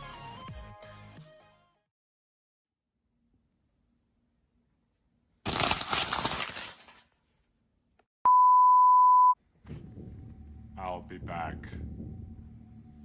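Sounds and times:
paper rustling: 5.5 - 7.3
steady electronic beep: 8.3 - 9.4.

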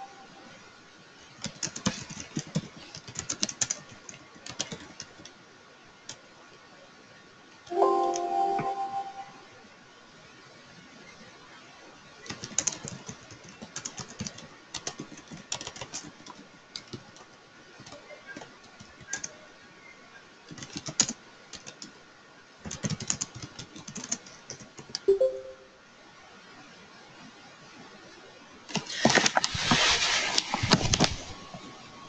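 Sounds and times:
brief tone: 7.7 - 9.6, 25.1 - 25.8.

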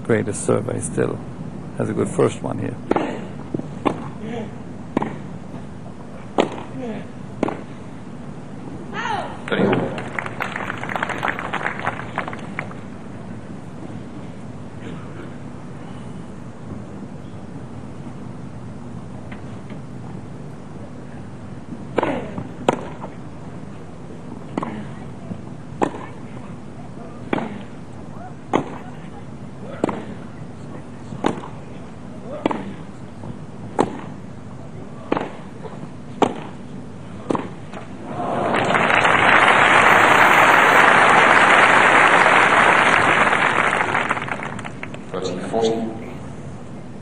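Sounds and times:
low background noise: 0.0 - 47.0
crowd applauding: 9.8 - 12.9, 38.1 - 45.1.

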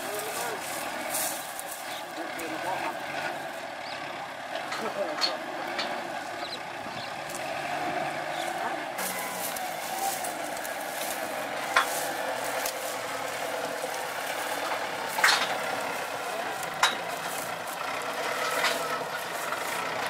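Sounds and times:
crackling rustle of cane: 0.0 - 3.6, 8.4 - 20.0
sharp cracks or clanks: 11.7 - 19.5.

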